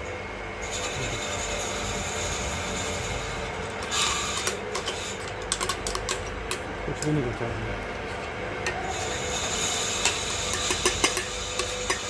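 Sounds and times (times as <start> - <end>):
metal spoon scraping metal jar: 8.9 - 12.0.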